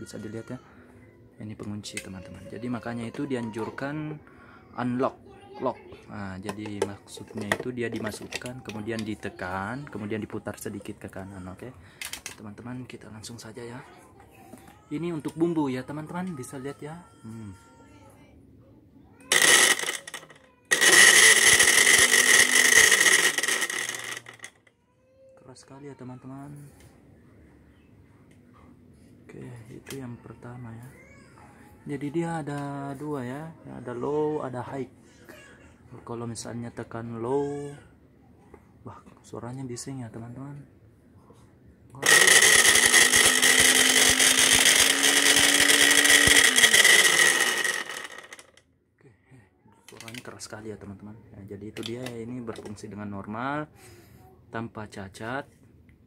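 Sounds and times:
electric blender motor whining: 19.3s - 24.5s, 42.0s - 48.6s.

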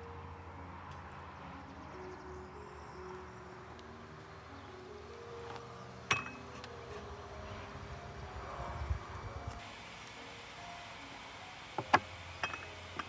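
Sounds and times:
soft background music: 0.0s - 13.0s
metal samovar clinking: 6.1s - 6.8s, 11.8s - 13.0s.

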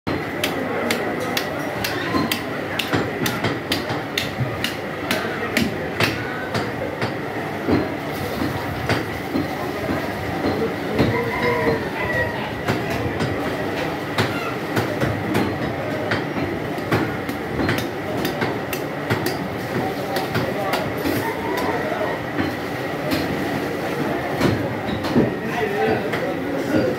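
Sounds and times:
market din: 0.1s - 26.9s
sharp knocks and clicks: 14.2s - 19.4s.

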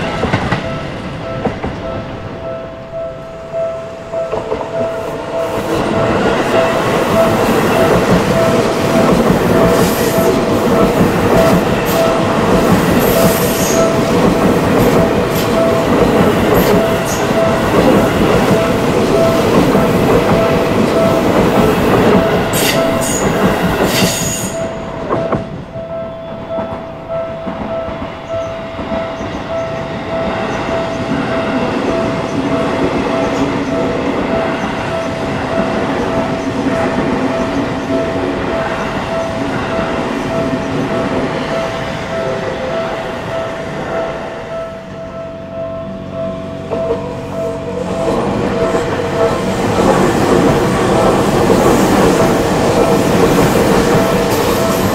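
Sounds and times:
train wheels clattering on rails: 0.0s - 2.5s, 4.1s - 44.5s, 46.6s - 54.9s
distant train rumble: 0.0s - 54.9s
level crossing warning bell: 0.0s - 54.9s
train wheels squealing: 22.3s - 24.8s.

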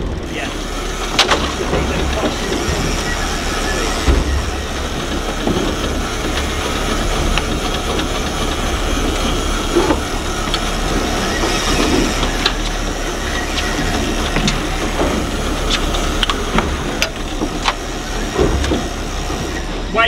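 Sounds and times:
boat engine humming: 0.0s - 20.0s
wind and water rushing: 0.0s - 20.0s.

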